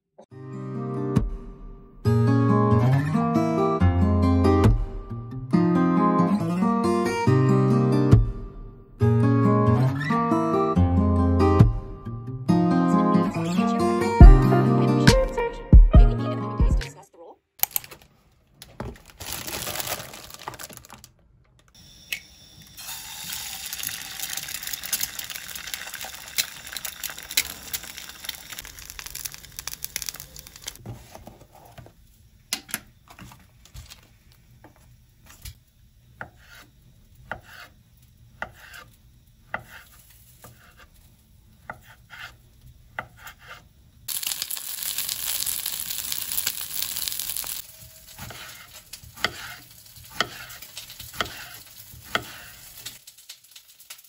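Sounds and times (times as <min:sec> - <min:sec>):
food sizzling in a pan: 0:22.6 - 0:30.8, 0:34.5 - 0:54.0.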